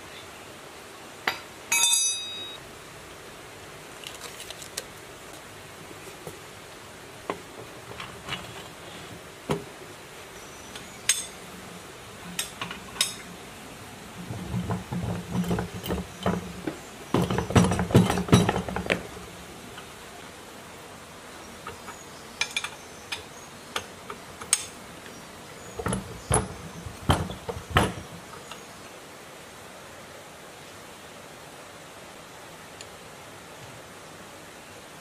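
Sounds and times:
metal tools clinking: 1.3 - 2.6, 10.8 - 11.5.

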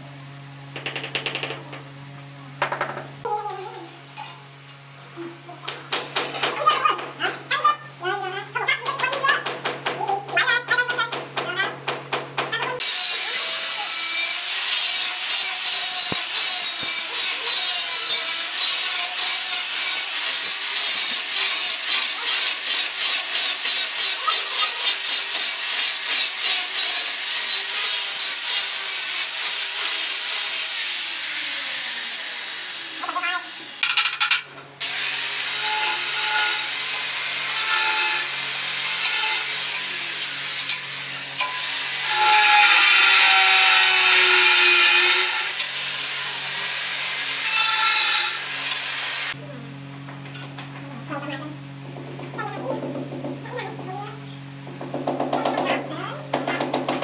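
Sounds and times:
angle grinder cutting tile: 12.8 - 49.4.

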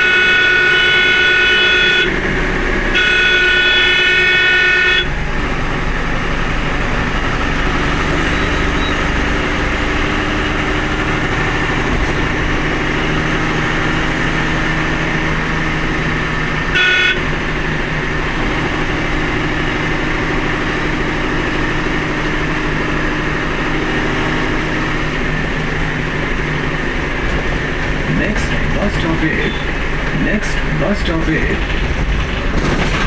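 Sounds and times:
horn toot: 0.0 - 2.2, 2.9 - 5.2, 16.7 - 17.4
vehicle engine running: 0.0 - 33.0.

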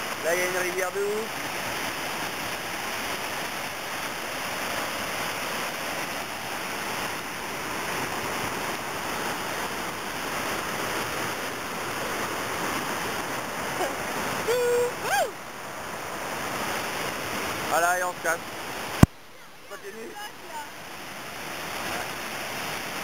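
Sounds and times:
river rushing over rocks: 0.0 - 23.0.

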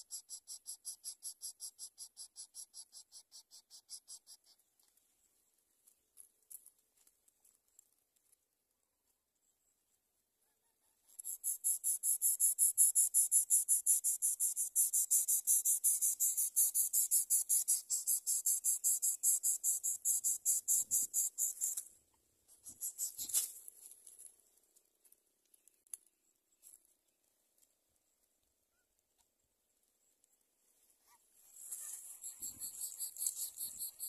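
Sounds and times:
nestlings begging calls: 31.7 - 34.0.

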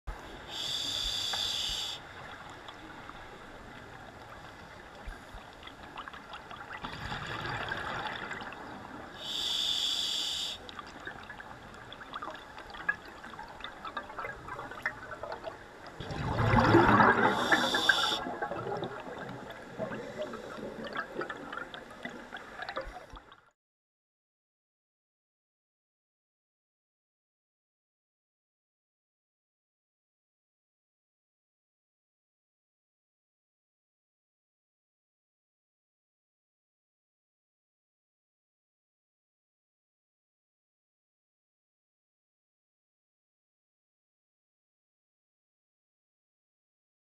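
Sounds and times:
scuba regulator hissing inhalations: 0.4 - 2.0, 9.2 - 10.7, 17.2 - 18.3
gurgling exhaled bubbles: 6.6 - 8.8, 13.9 - 23.0.

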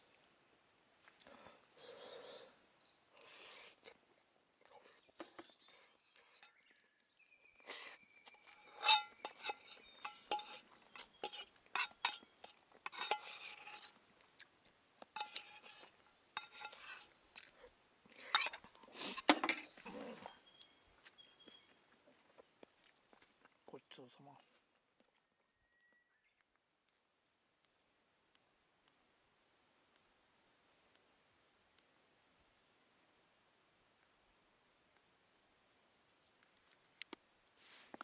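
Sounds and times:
metal spoon scraping metal bowl: 8.4 - 14.0, 15.2 - 17.1, 18.3 - 19.8.

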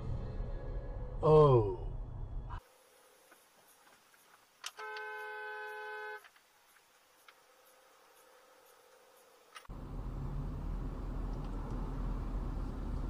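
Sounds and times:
car horn blast: 4.7 - 6.3
low road rumble: 9.6 - 13.0.

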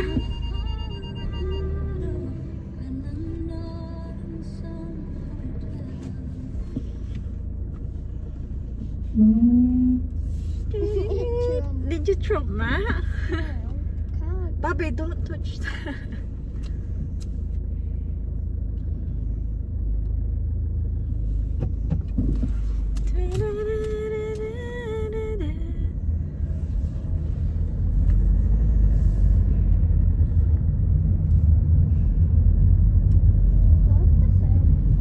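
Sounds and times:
held pitched tone: 0.0 - 2.3
car engine and road noise: 0.0 - 35.0.

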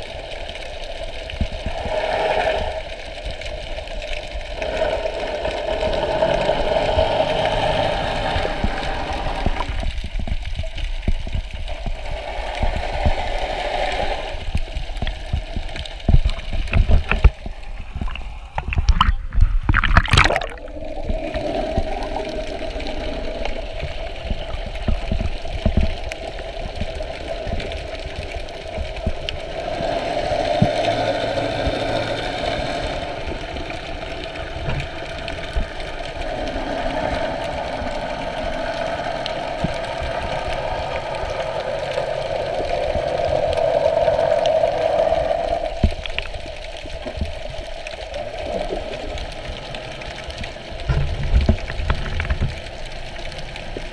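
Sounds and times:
water splashing: 0.0 - 53.9
boat motor droning underwater: 4.2 - 10.4, 19.8 - 53.9.

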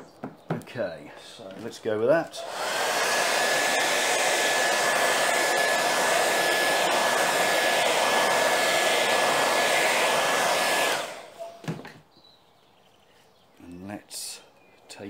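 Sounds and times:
hair dryer blowing: 2.4 - 11.4.

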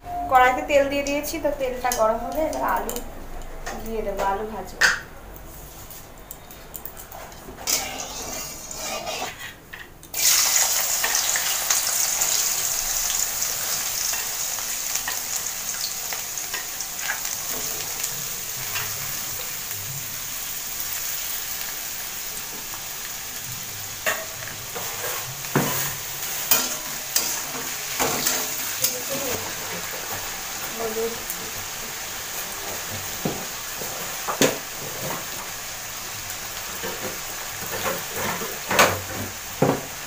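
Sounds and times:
potatoes sizzling in hot oil: 7.7 - 9.4, 10.1 - 40.0.

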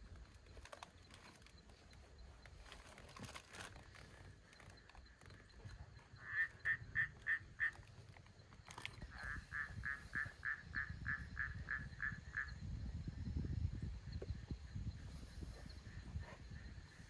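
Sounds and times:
frog croaking: 3.7 - 12.6.

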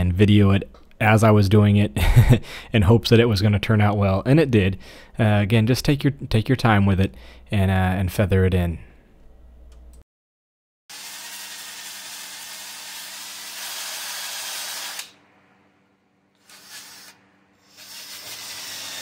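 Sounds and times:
drill sanding a wheel rim: 16.4 - 19.0.

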